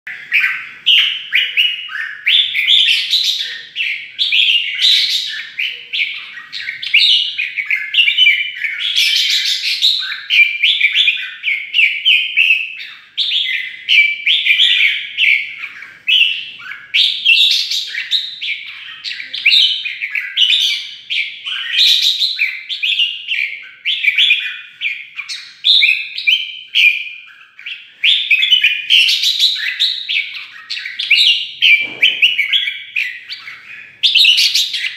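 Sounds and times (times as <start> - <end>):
bird singing whistled phrases: 0.1 - 34.9.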